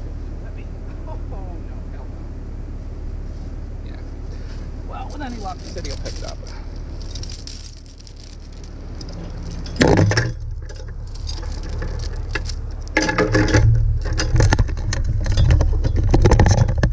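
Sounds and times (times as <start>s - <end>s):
heavy chain rattling: 5.0s - 14.8s.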